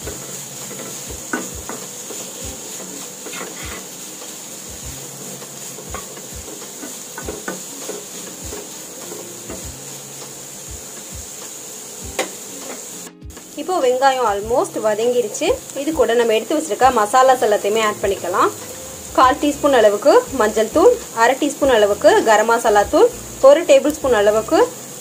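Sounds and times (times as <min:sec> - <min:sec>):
wooden spatula scraping pan: 0:00.0 - 0:11.6
onions sizzling in oil: 0:00.0 - 0:25.0.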